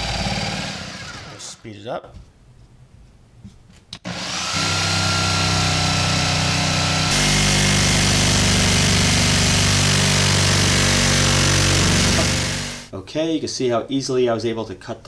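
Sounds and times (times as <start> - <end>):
jigsaw sawing through plaster: 0.0 - 1.6, 4.1 - 12.9.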